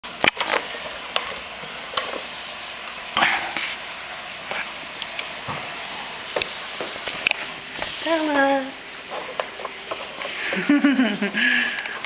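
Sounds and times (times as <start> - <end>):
plastic ball rolling on wood floor: 9.0 - 10.8.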